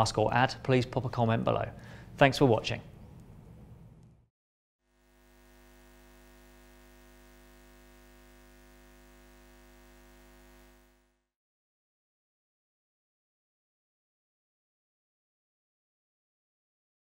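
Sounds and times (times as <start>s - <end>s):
faint hum of held tones: 4.9s - 11.2s.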